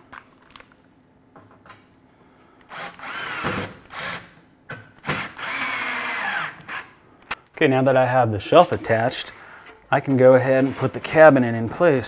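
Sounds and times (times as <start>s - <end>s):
cordless drill driving screws: 2.7s - 4.2s, 5.0s - 6.9s.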